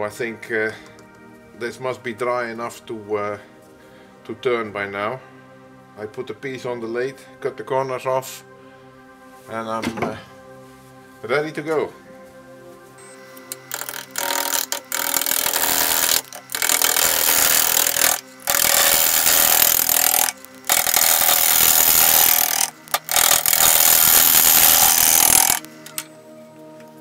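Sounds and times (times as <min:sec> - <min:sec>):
gouge cutting wood on a lathe: 0:13.4 - 0:26.0.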